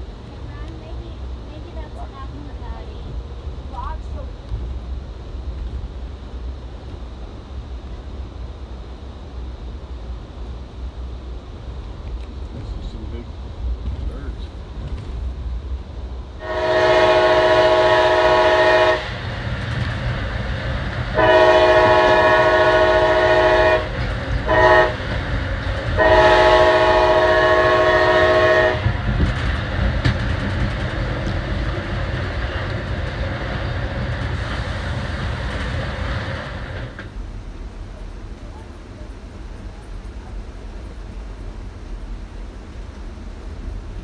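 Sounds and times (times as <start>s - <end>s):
train rumbling on rails: 0.0s - 44.0s
locomotive horn blasts: 16.4s - 19.2s, 21.2s - 25.1s, 26.0s - 28.9s.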